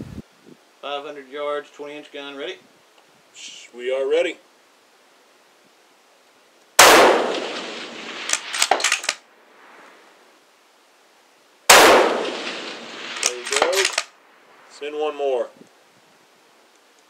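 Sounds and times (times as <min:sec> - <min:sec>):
rifle shots echoing: 0:06.8 - 0:09.2, 0:11.7 - 0:14.1
rifle bolt metallic clicks: 0:08.2 - 0:09.2, 0:12.3 - 0:14.1.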